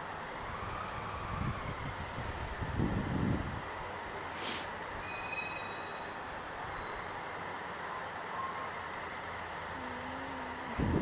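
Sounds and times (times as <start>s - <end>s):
tunnel traffic rumble and hiss: 0.0s - 11.0s
faint high squeals: 5.0s - 11.0s.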